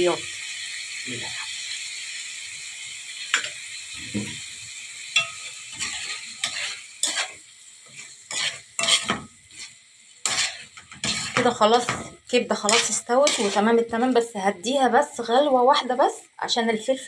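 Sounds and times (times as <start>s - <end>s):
food sizzling in a metal pan: 0.0s - 17.0s
metal spoon scraping pan: 5.2s - 14.0s.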